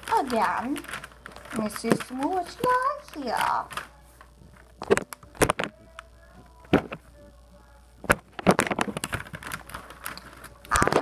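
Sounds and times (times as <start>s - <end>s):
paper puppet handling clicks: 8.1s - 11.0s.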